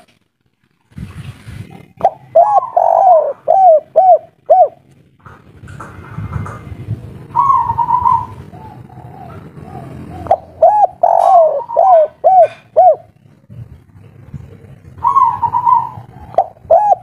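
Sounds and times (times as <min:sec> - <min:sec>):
dove cooing: 0:01.6 - 0:04.9, 0:07.2 - 0:17.0.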